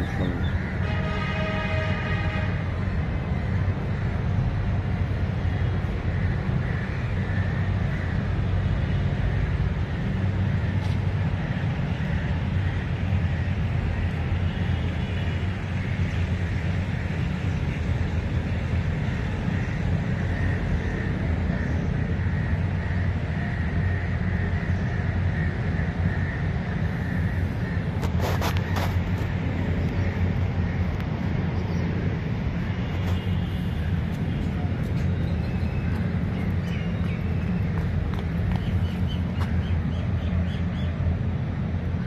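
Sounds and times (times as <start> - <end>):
outdoor background rumble: 0.0 - 42.0.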